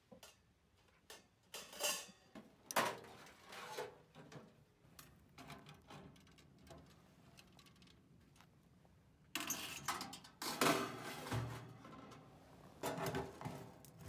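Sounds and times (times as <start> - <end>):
metal stove scraping and clanking: 1.6 - 2.3, 3.0 - 4.4, 9.4 - 14.0.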